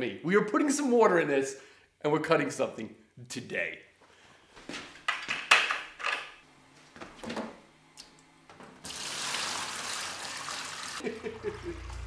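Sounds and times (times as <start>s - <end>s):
water pouring from bucket: 8.8s - 11.1s.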